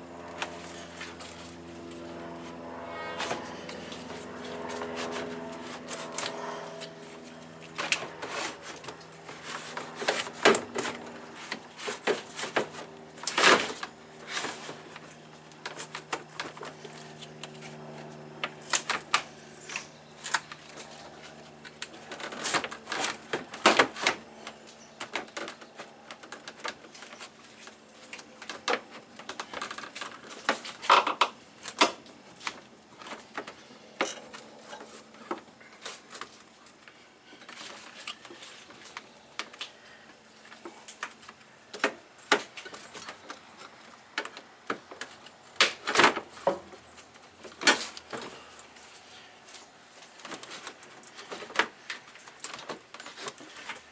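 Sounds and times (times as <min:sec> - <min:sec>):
plastic fan assembly knocking and scraping: 0:07.7 - 0:17.5.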